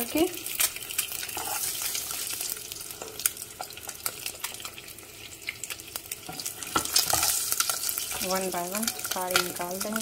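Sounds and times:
eggs sizzling in hot oil: 0.0s - 10.0s
spatula scraping in a pan: 0.9s - 4.6s, 6.2s - 8.3s.

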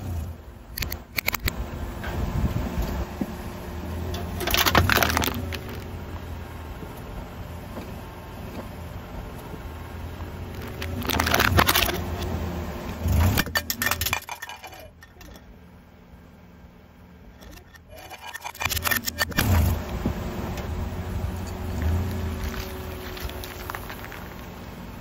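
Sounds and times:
low rumble of car: 0.0s - 25.0s
tyre crushing small objects: 4.2s - 6.4s, 10.4s - 12.4s, 17.4s - 24.6s
loud crackling crunches: 4.3s - 7.1s, 9.4s - 14.9s, 17.5s - 24.6s.

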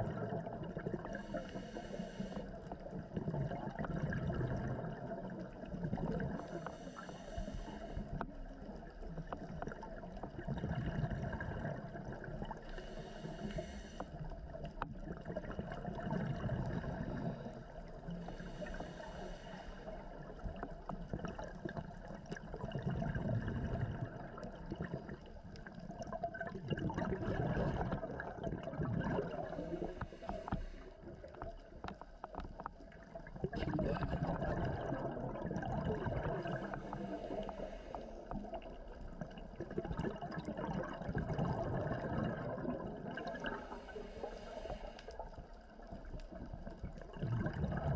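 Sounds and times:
exhaled bubbles rumbling: 0.0s - 47.9s
regulator hissing inhale: 1.1s - 2.6s, 6.3s - 8.3s, 12.6s - 14.4s, 17.0s - 20.7s, 29.4s - 31.4s, 36.4s - 38.4s, 43.4s - 45.5s.

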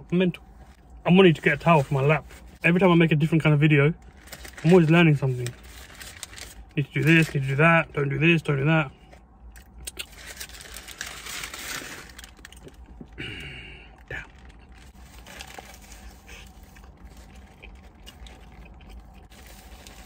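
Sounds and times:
paper wrapper crinkling: 4.0s - 7.6s, 10.0s - 13.0s, 14.0s - 20.0s
chewing food: 12.4s - 13.2s, 14.0s - 20.0s.

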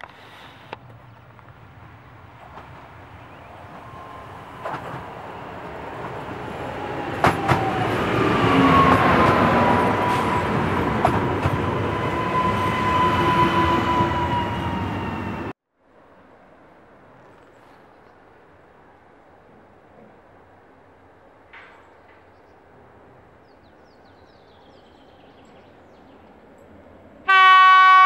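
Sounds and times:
train passing rumble: 0.0s - 28.0s
train whine: 1.5s - 15.6s
wheels clicking over rail joints: 2.4s - 12.0s.

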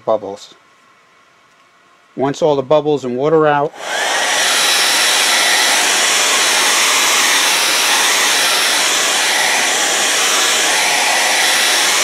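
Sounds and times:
hair dryer running: 3.7s - 12.0s.

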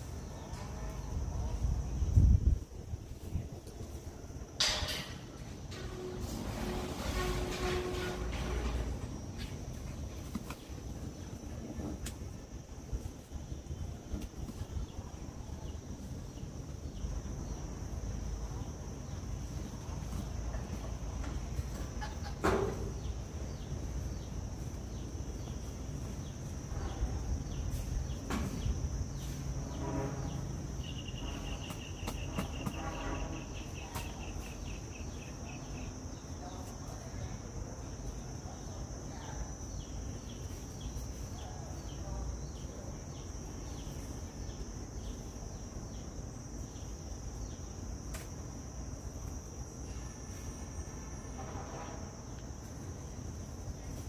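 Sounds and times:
high-pitched insect trill: 14.8s - 54.0s.

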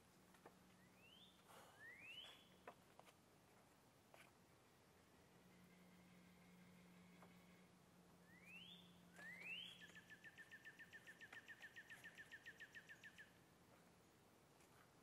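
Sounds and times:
songbird whistles and trill: 0.8s - 2.6s, 8.2s - 13.4s.

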